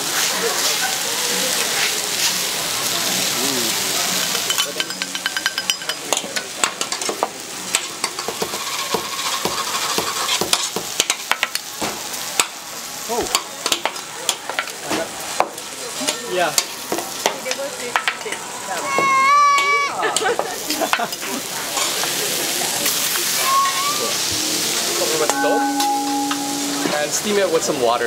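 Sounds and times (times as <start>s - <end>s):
food sizzling on a griddle: 0.0s - 28.0s.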